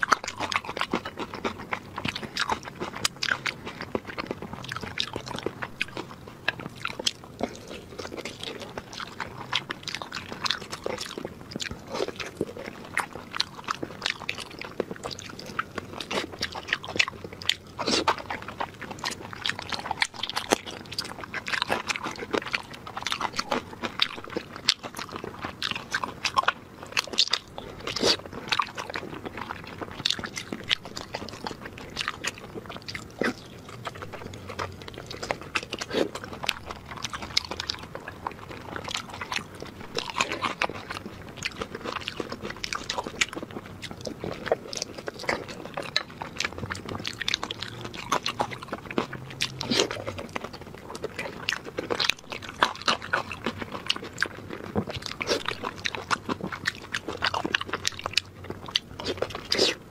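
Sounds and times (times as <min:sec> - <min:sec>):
person chewing meat: 0:00.0 - 0:59.9.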